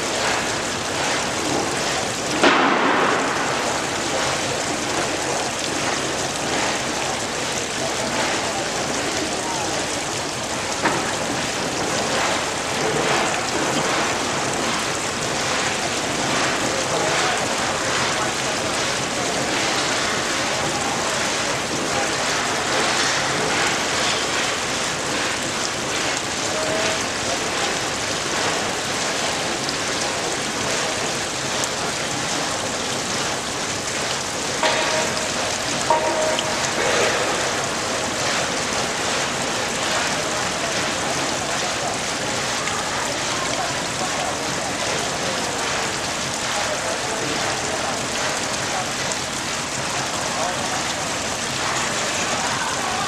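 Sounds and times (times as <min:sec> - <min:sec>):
splashing water: 0:00.0 - 0:53.0.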